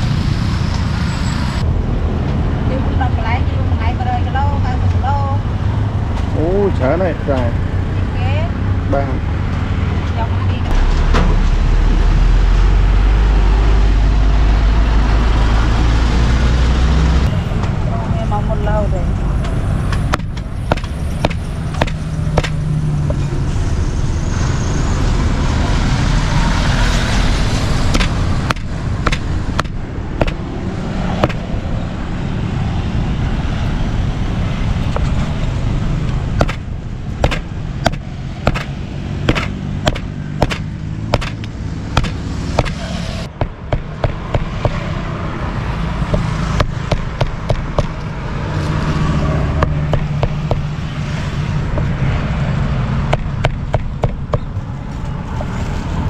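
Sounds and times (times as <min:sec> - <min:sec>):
road traffic rumble: 0:00.0 - 0:56.0
cleaver chopping meat on block: 0:20.1 - 0:22.6, 0:28.0 - 0:30.4, 0:31.2 - 0:31.4, 0:36.4 - 0:36.6, 0:37.2 - 0:38.7, 0:39.3 - 0:42.8, 0:43.4 - 0:44.8, 0:46.1 - 0:48.0, 0:53.1 - 0:54.5.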